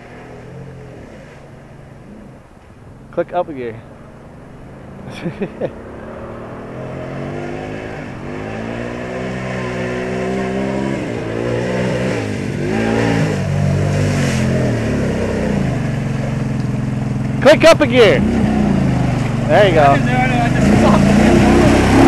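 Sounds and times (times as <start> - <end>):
atv engine revving: 3.9 - 22.0
mud and water spraying: 12.7 - 16.6.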